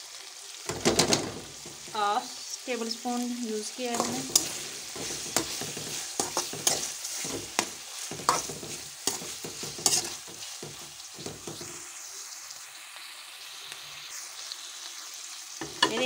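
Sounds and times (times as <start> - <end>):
food sizzling in oil: 0.0 - 16.0
metal spatula scraping pan: 3.9 - 11.8.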